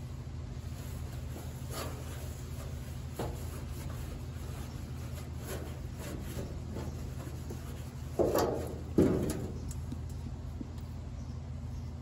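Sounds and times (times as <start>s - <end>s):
steady low hum: 0.0s - 12.0s
rag rubbing on steel: 0.7s - 9.6s.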